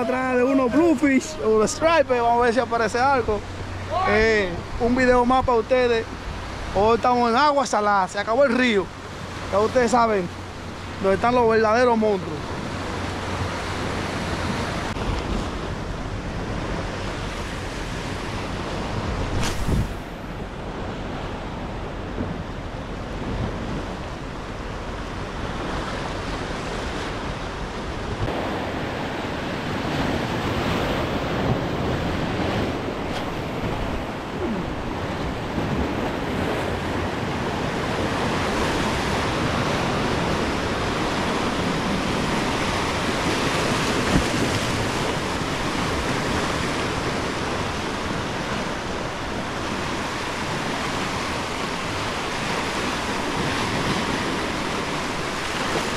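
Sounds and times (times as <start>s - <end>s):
surf breaking over rocks: 0.0s - 20.4s
wind on microphone: 12.5s - 55.9s.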